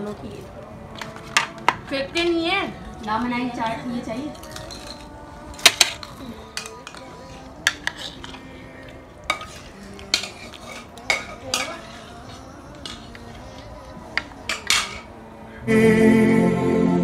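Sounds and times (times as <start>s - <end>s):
metal spoon clinking on plate: 4.3s - 8.4s, 9.3s - 13.3s, 14.2s - 15.1s.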